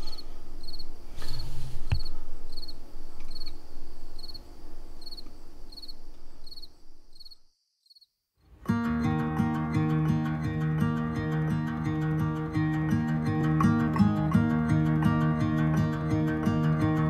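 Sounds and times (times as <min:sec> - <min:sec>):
cricket chirping: 0:00.0 - 0:08.2.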